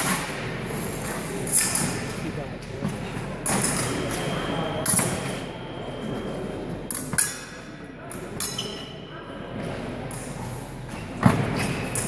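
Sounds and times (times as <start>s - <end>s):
chatter in a hall: 0.0s - 12.0s.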